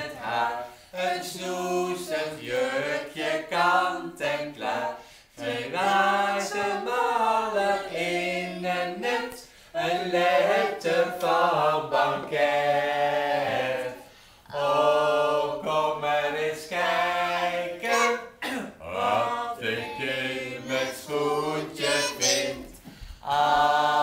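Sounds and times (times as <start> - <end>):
children singing together: 0.0 - 24.0.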